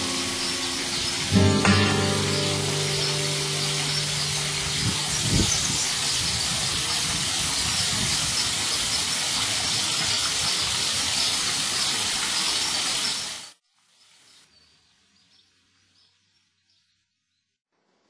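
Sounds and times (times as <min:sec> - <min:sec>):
fountain water splashing into pool: 0:00.0 - 0:14.3.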